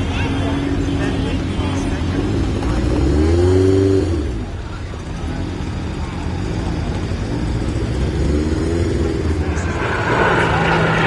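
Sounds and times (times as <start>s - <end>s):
car engine driving past: 8.0s - 11.0s.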